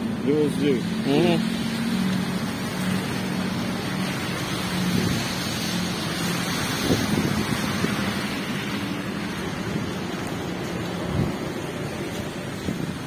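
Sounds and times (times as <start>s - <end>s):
rain: 0.0s - 13.0s
wind noise on microphone: 4.6s - 13.0s.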